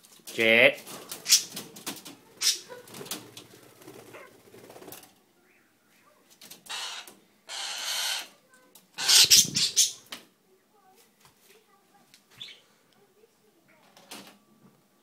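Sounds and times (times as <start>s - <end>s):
bird wings flapping: 0.8s - 5.2s.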